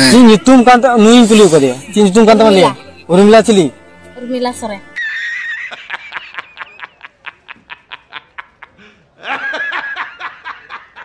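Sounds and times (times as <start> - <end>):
man laughing hard: 5.0 - 11.0.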